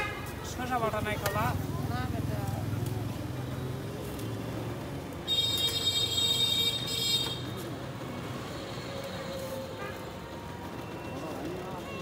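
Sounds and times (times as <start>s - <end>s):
street traffic: 0.0s - 12.0s
vehicle horn steady tone: 5.3s - 7.5s.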